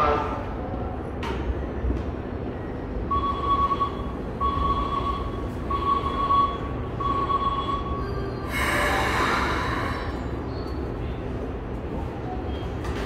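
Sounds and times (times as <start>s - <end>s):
low rumble of standing train: 0.0s - 13.0s
electronic warning beeps: 3.1s - 11.2s.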